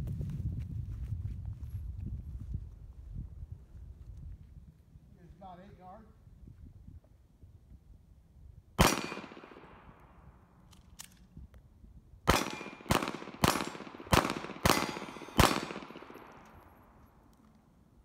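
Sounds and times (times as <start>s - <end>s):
pistol shots with echo: 8.8s - 10.0s, 12.3s - 17.0s.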